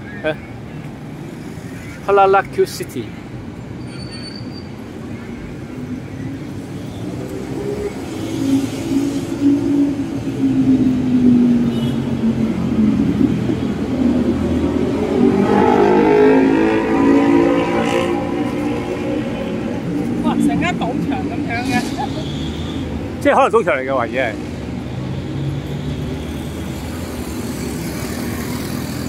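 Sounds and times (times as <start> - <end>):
passing road traffic: 0.0 - 29.0
vehicle engine passing by: 12.4 - 22.2.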